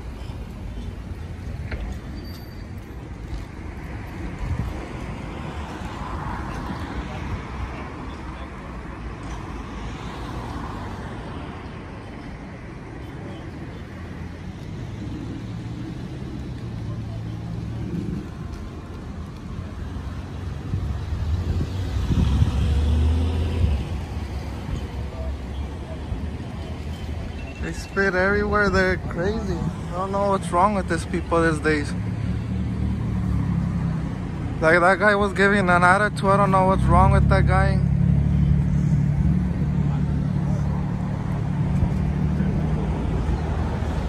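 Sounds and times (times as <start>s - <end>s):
traffic rumble: 0.0s - 44.0s
vehicle engine passing by: 20.0s - 25.3s, 29.4s - 44.0s.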